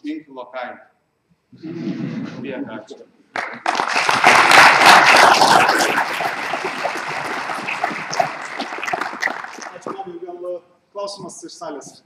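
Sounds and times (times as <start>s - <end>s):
audience applauding: 3.4s - 10.1s.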